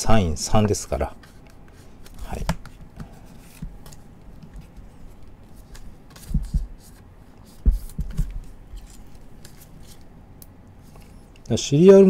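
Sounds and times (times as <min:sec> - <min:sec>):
plastic card sleeves rustling: 0:01.2 - 0:10.1.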